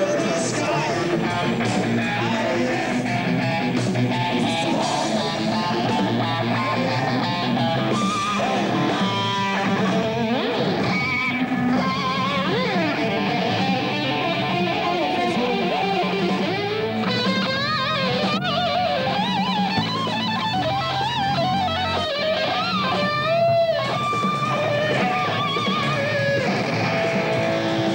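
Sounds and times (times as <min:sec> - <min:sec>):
electric guitar lead bent notes: 0:00.0 - 0:27.9
rock band playing: 0:00.0 - 0:27.9.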